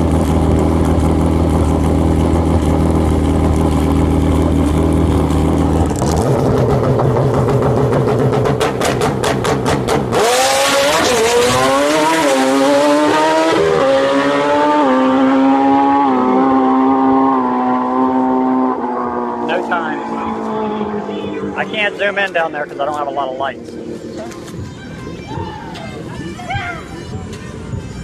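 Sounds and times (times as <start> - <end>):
rapid engine crackle: 0.0 - 9.8
motorcycle engine revving: 0.0 - 25.0.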